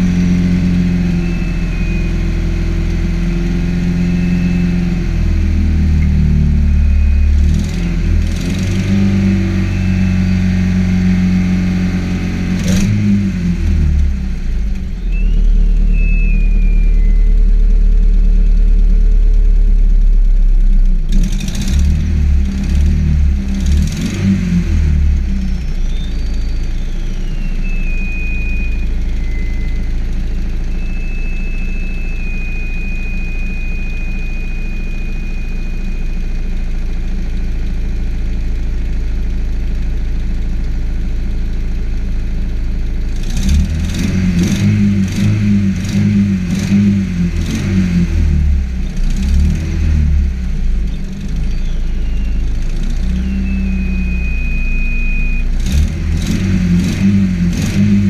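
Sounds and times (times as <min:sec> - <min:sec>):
car engine idling: 0:00.0 - 0:44.0, 0:44.8 - 0:58.0
thin high whistle: 0:01.0 - 0:02.5, 0:04.0 - 0:05.0, 0:15.0 - 0:17.4, 0:25.5 - 0:36.6, 0:51.4 - 0:55.6.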